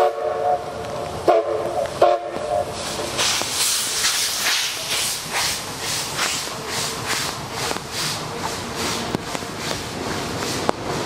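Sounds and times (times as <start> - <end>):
steam whistle blasts: 0.0 - 2.8
locomotive exhaust beats: 0.0 - 11.0.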